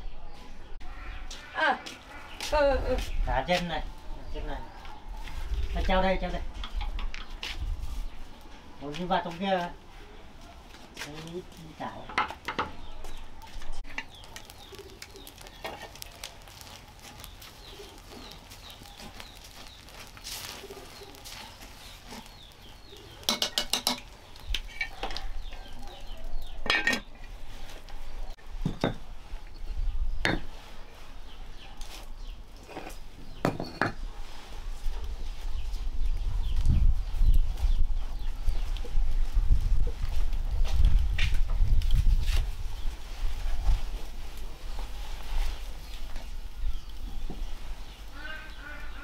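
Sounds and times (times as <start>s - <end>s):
metal pots and utensils clinking: 23.2s - 25.2s, 26.6s - 27.3s.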